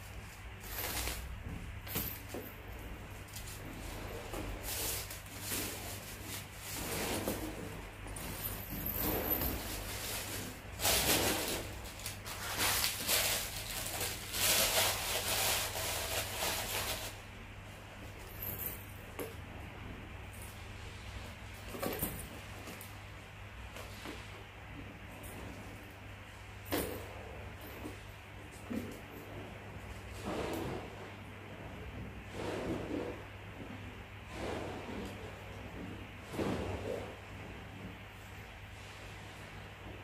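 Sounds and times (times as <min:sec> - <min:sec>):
paper wrapping rustling and crinkling: 0:09.3 - 0:17.2.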